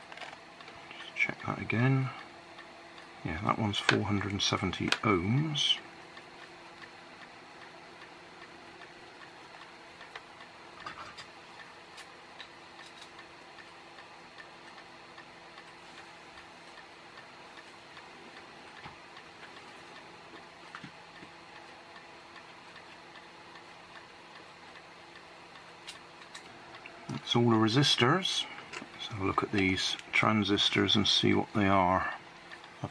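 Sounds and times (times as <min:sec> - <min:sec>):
steady low hum: 0:00.0 - 0:32.9
small clicks and taps: 0:04.7 - 0:05.1, 0:08.8 - 0:14.1.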